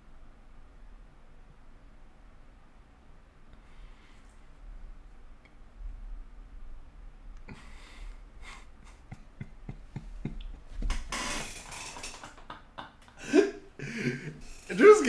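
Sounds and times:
man laughing breathily: 7.5 - 10.8, 11.4 - 15.0.

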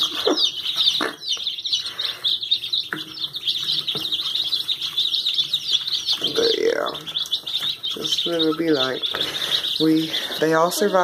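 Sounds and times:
ducklings peeping: 0.0 - 11.0.

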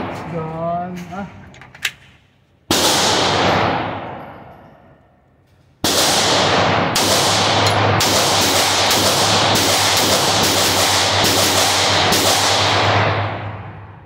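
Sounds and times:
pistol gunshots echoing: 2.7 - 4.5, 5.8 - 14.0.

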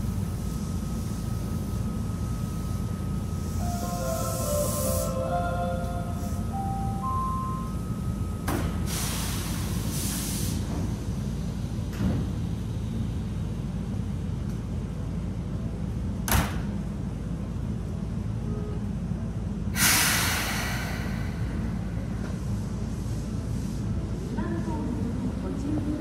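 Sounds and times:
electric train low rumble: 0.0 - 26.0
loud hiss of released air: 3.4 - 5.2, 8.8 - 11.1, 19.7 - 21.9
pneumatic door hisses: 4.2 - 5.2, 8.6 - 11.1, 19.7 - 21.6.

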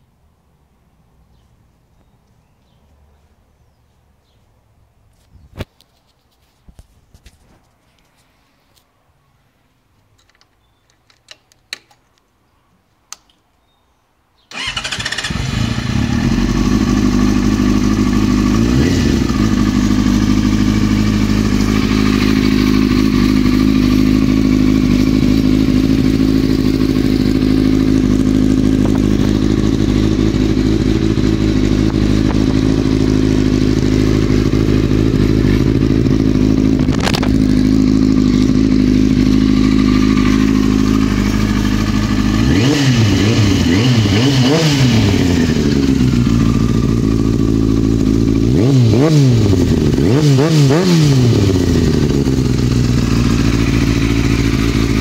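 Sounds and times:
small clicks: 13.1 - 13.6
motorcycle engine starting and idling: 14.5 - 55.0.

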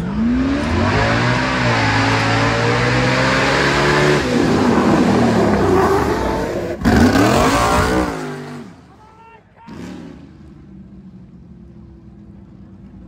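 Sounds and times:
racing cart engine revving: 0.0 - 8.9.

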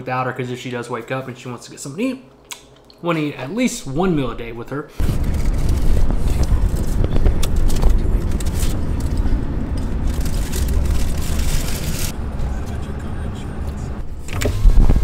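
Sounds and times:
road and engine rumble in car: 5.0 - 15.0.

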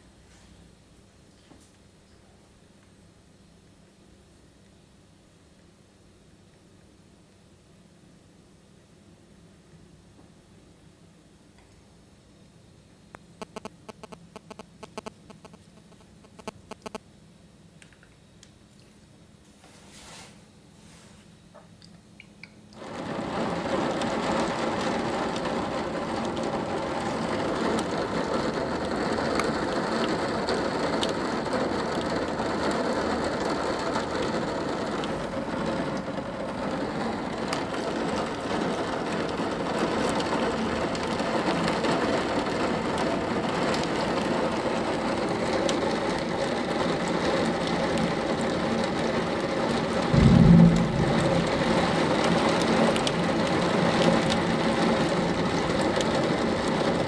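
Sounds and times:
heavy rain drumming on roofs: 22.8 - 57.0
loud low thump: 50.1 - 52.0.

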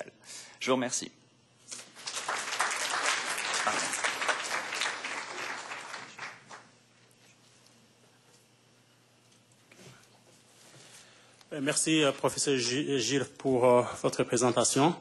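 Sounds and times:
audience applauding: 1.8 - 6.8.

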